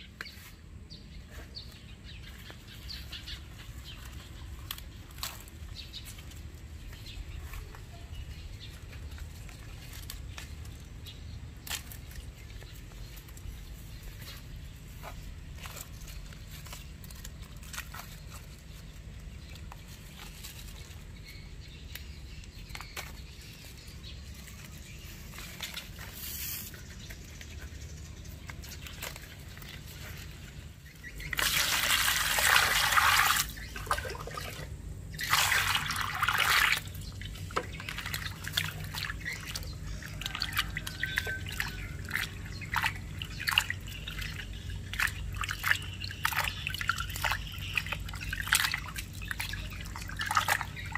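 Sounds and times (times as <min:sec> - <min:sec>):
hands swishing leaves in water: 0:01.6 - 0:50.9
water pouring into metal basin: 0:31.3 - 0:34.6, 0:35.2 - 0:36.9.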